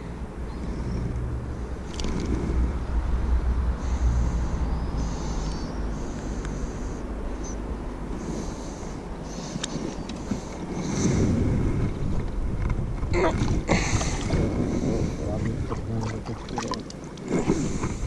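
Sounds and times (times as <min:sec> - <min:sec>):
low outdoor rumble: 0:00.0 - 0:18.0
fish splashing into water: 0:15.7 - 0:17.3.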